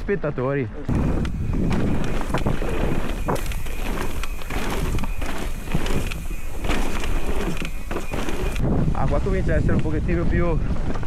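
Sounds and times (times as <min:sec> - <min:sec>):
bike rattles and knocks: 0:00.9 - 0:09.1
tyre noise on dirt: 0:00.9 - 0:11.0
wind rushing over microphone: 0:00.9 - 0:11.0.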